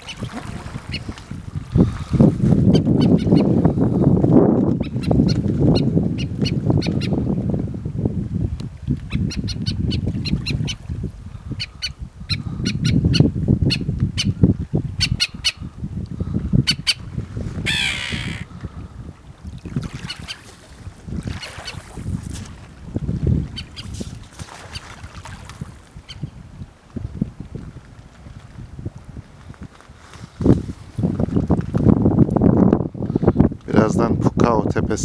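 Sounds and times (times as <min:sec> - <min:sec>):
seabirds calling: 0:00.0 - 0:03.8, 0:04.8 - 0:07.2, 0:09.1 - 0:14.4, 0:15.0 - 0:15.7, 0:16.6 - 0:18.7, 0:19.9 - 0:20.6, 0:21.2 - 0:22.0, 0:23.4 - 0:25.0, 0:26.0 - 0:26.4.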